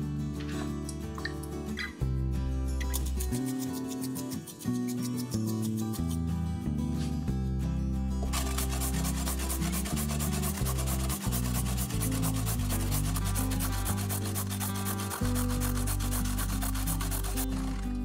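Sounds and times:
background music: 0.0s - 18.0s
carrot scraping on metal grater: 8.3s - 18.0s.

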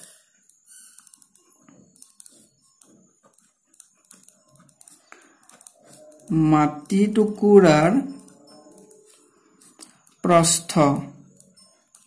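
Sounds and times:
pen scratching on paper: 0.6s - 6.9s.

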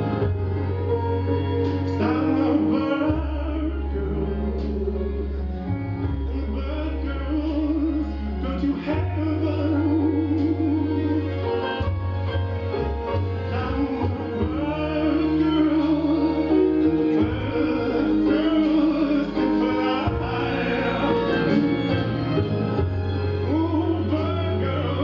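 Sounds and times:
low bass notes: 0.0s - 25.0s
person singing with vibrato: 1.8s - 11.8s, 13.4s - 22.4s.

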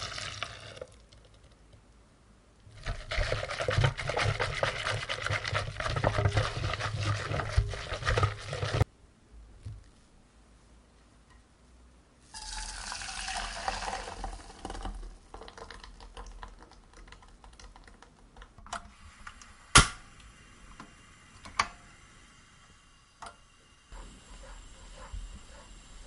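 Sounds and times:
liquid pouring into saucepan: 12.4s - 17.0s.

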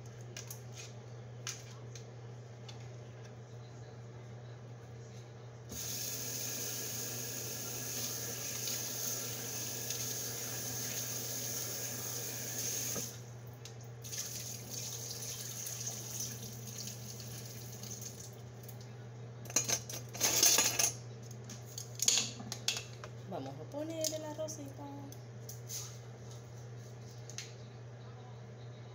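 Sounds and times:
steady low hum: 0.0s - 7.8s, 17.2s - 28.9s
water running from tap: 5.7s - 13.2s, 14.0s - 18.4s.

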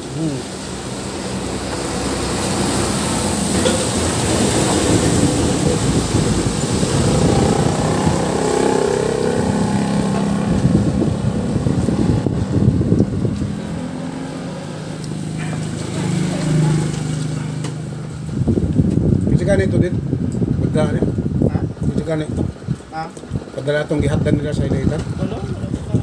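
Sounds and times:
vehicle passing by: 0.0s - 18.6s.

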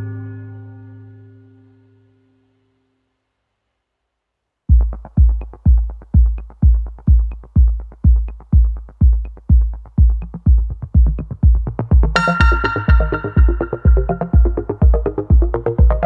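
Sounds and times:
electronic music with kick drum: 4.7s - 16.0s.

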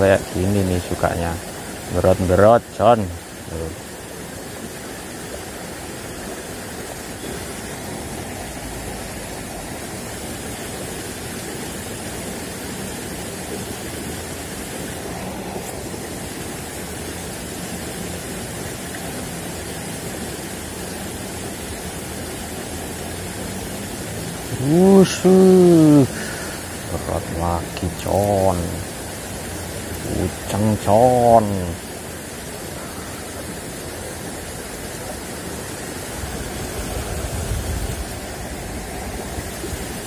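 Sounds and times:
man speaking: 0.0s - 3.8s, 24.5s - 28.9s, 30.0s - 31.8s
water rushing in a ditch: 0.0s - 40.0s.

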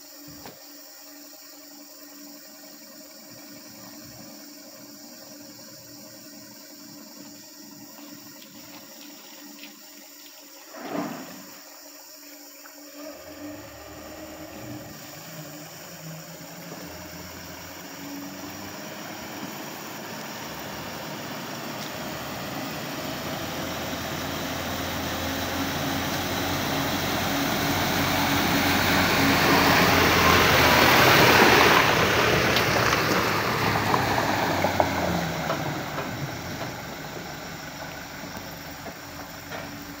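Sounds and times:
water spraying from wheels: 12.9s - 40.0s
diesel truck engine running: 13.0s - 40.0s.

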